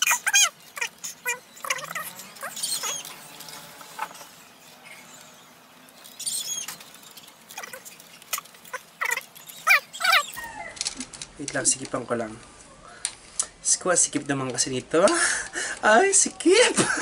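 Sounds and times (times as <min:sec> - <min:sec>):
high-pitched squeaky chirps: 0:00.0 - 0:10.8.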